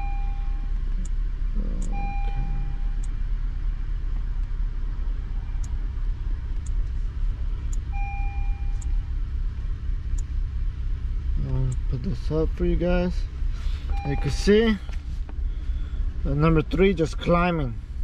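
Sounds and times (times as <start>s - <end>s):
short beeps: 0.0s - 0.7s, 1.8s - 3.1s, 7.9s - 9.0s, 13.9s - 14.5s
car engine idling with misfire: 0.0s - 18.0s.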